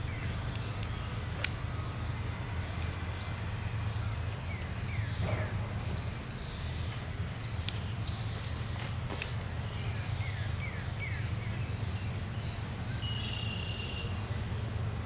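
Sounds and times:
steady low rumble: 0.0 - 11.6.

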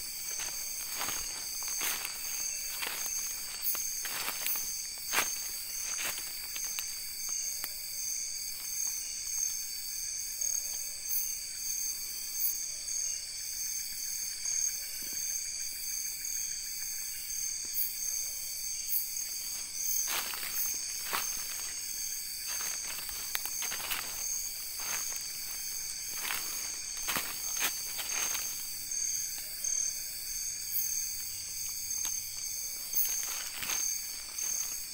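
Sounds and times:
footsteps through leaf litter: 0.0 - 7.2, 19.4 - 29.5, 32.0 - 34.9
insects trilling: 0.0 - 34.9.

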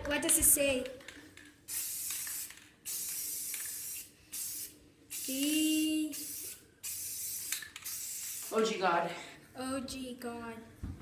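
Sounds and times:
spray can hissing: 1.6 - 8.8.

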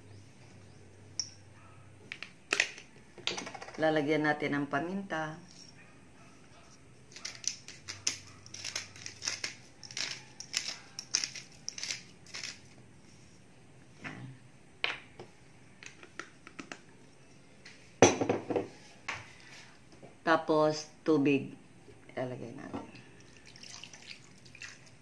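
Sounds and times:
pepper grinder crunching: 7.1 - 12.7.

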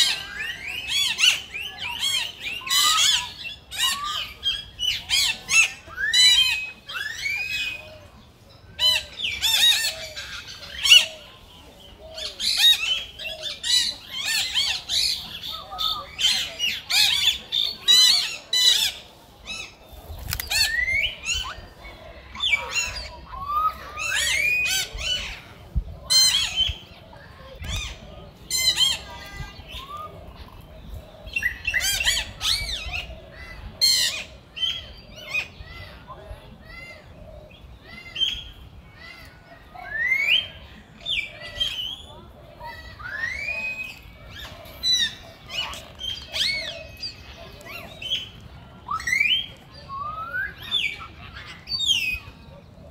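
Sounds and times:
monkeys squealing and shrieking: 0.0 - 8.0, 39.0 - 48.3.

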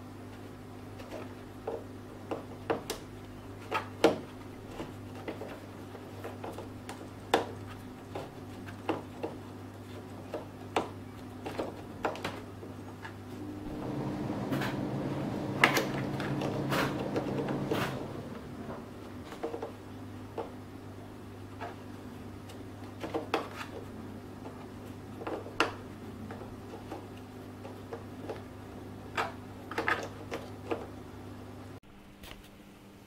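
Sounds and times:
steady low hum: 4.3 - 23.0.

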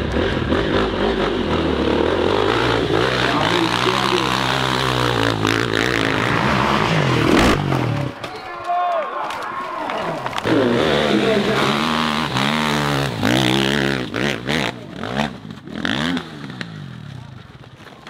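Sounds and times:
motorcycle engines revving high: 0.0 - 8.2, 10.3 - 18.0.

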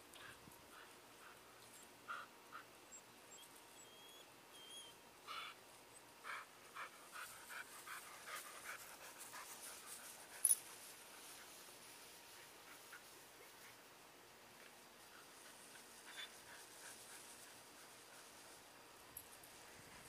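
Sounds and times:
dog panting: 6.2 - 10.5.

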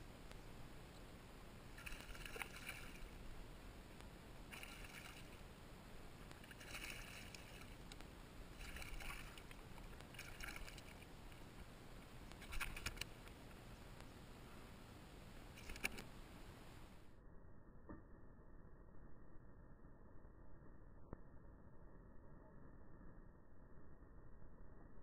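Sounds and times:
clicks as fish is swung aboard: 6.3 - 11.5, 12.3 - 13.4, 15.6 - 16.1.

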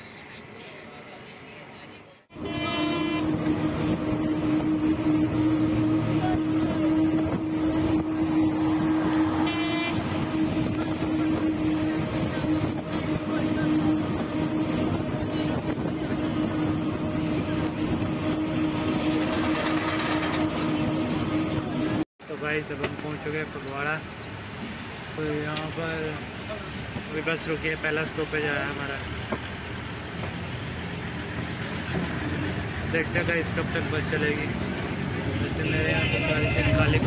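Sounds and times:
bus engine droning: 0.0 - 37.0
road and tyre noise: 0.0 - 37.0
vehicle horn toots: 2.3 - 3.9, 9.4 - 10.5, 35.5 - 37.0.

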